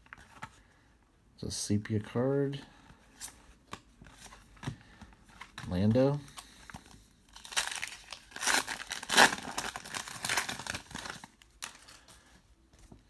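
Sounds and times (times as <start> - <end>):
foil wrapper crinkling and tearing: 7.3 - 12.0.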